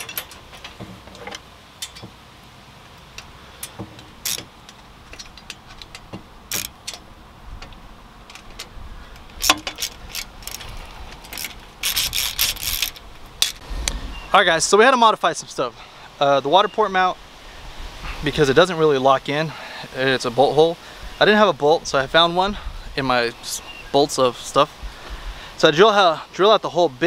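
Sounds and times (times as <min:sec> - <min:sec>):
metal bolt and washers clinking: 0:00.0 - 0:02.2, 0:02.9 - 0:13.6
wrench clicking: 0:05.1 - 0:07.0, 0:09.4 - 0:13.6.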